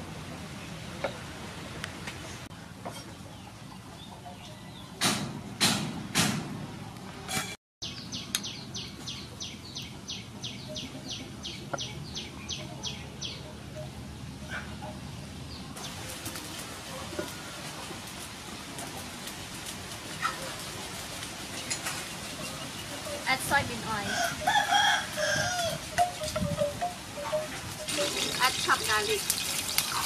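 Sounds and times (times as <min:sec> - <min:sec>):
bird chirping: 0:07.8 - 0:16.0, 0:25.9 - 0:30.0.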